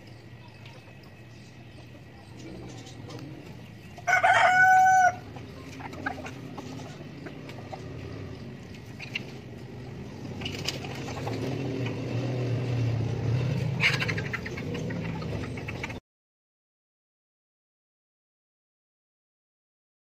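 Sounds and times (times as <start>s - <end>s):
low hum: 0.0s - 15.7s
chicken calling: 0.4s - 11.6s, 13.5s - 16.0s.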